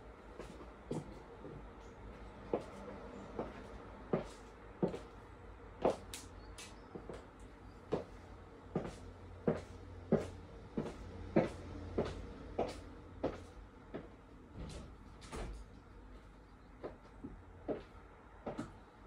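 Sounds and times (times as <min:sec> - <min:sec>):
heels clicking on wooden floor: 0:03.4 - 0:05.2, 0:05.8 - 0:14.1.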